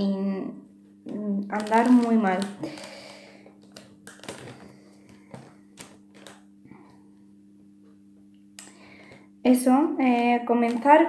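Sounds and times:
paper leaflet clicks and rustles: 1.5s - 6.5s.

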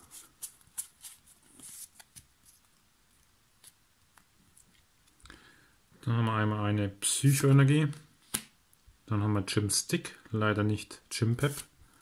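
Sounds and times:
cards sliding rustle: 0.0s - 2.8s, 11.4s - 11.7s.

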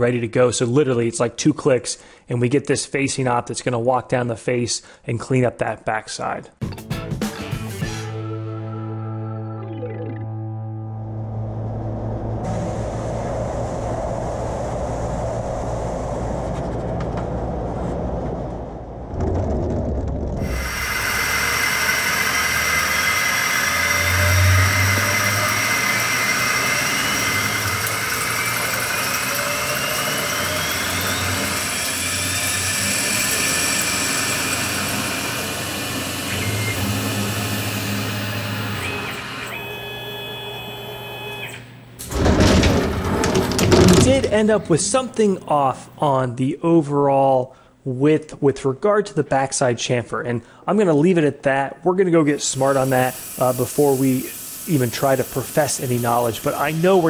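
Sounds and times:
rising machine whines: 8.1s - 19.4s, 20.3s - 45.5s
coolant spray hiss: 20.4s - 36.6s, 52.3s - 57.0s
lathe spindle hum: 20.4s - 44.4s.

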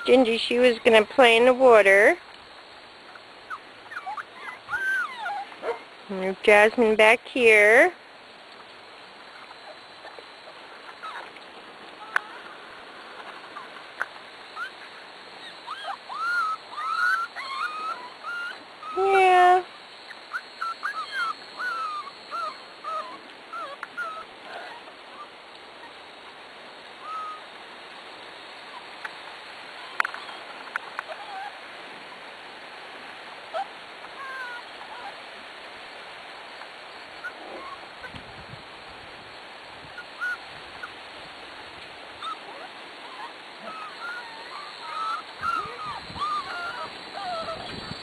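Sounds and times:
puppies whining and squeaking: 3.5s - 5.8s, 9.3s - 11.4s, 12.0s - 12.6s, 14.6s - 14.8s, 15.4s - 26.0s, 27.0s - 27.5s, 29.8s - 31.6s, 33.5s - 35.2s, 37.2s - 38.1s, 40.0s - 41.0s, 42.2s - 48.0s
puppy yelp: 3.5s - 5.8s, 11.0s - 11.3s, 12.0s - 12.5s, 14.6s - 14.8s, 15.4s - 26.0s, 27.0s - 27.5s, 29.8s - 31.6s, 33.5s - 35.2s, 37.2s - 38.1s, 40.0s - 40.9s, 42.2s - 48.0s.

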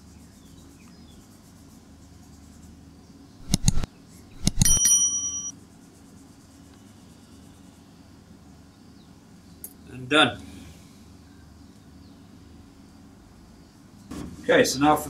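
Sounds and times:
mouse clicks: 3.4s - 4.8s
bright bell ding: 4.4s - 5.5s.

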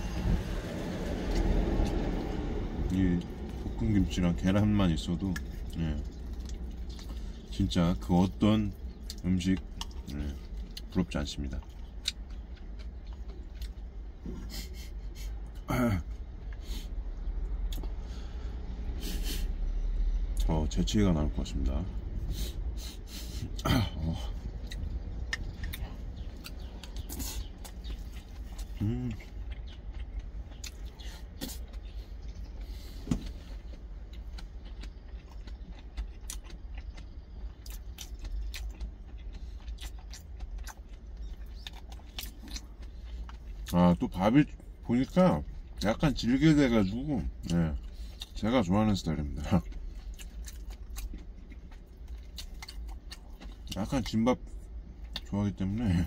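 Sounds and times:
man eating: 0.0s - 19.7s, 21.4s - 56.0s
low steady hum: 0.0s - 56.0s
steady low rumble: 0.0s - 56.0s
chewing and lip smacks: 0.1s - 19.2s, 21.6s - 56.0s
sniffs through the nose: 19.0s - 19.6s, 22.2s - 23.6s
man saying mmm: 28.7s - 29.3s.

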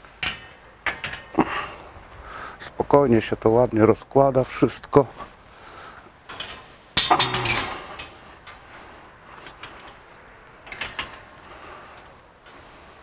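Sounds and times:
metal drying rack clanking: 0.1s - 1.8s, 6.2s - 11.4s.

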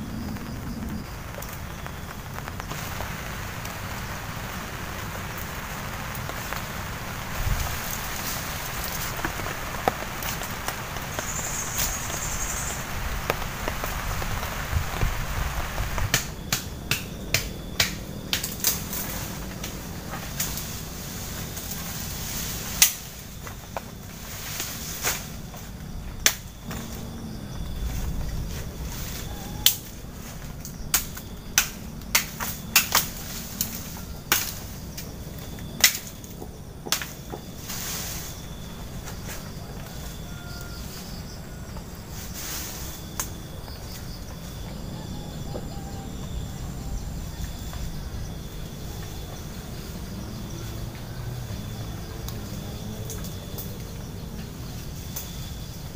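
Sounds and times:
forest background hiss: 0.0s - 55.9s
twigs snapping: 13.2s - 22.1s, 22.7s - 23.9s, 30.5s - 37.2s
sharp woody cracks: 15.0s - 19.8s, 30.9s - 35.1s, 35.8s - 37.4s
machete chopping branches: 16.0s - 20.7s, 31.0s - 34.7s.

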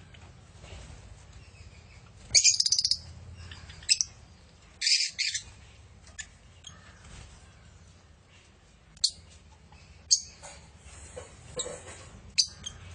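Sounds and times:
lovebirds chattering calls: 1.6s - 7.7s, 11.6s - 12.9s.

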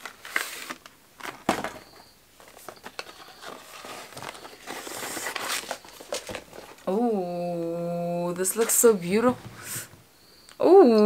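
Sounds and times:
paper rustling and crinkling: 0.0s - 6.9s, 8.4s - 9.8s.

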